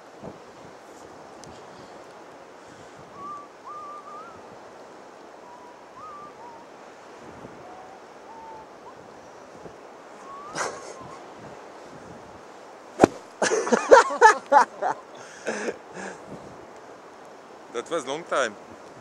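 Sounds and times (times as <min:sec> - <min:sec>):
wind rushing on microphone: 0:00.0 - 0:19.0
short whistled notes: 0:05.5 - 0:06.6.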